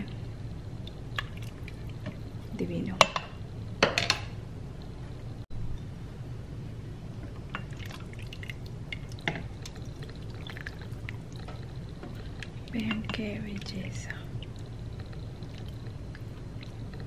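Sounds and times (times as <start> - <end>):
broth pouring and dripping: 0.0 - 2.6, 7.2 - 17.0.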